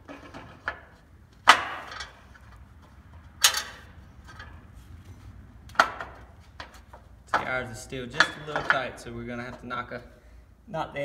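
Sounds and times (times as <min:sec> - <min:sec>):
metal clinking and knocking: 0:00.0 - 0:04.7, 0:05.7 - 0:09.0.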